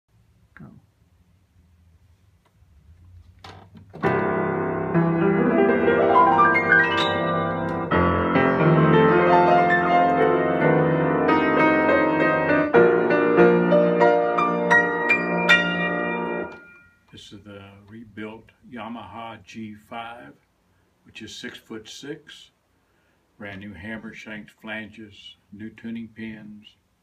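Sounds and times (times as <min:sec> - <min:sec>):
grand piano chords and runs: 0:04.0 - 0:16.8.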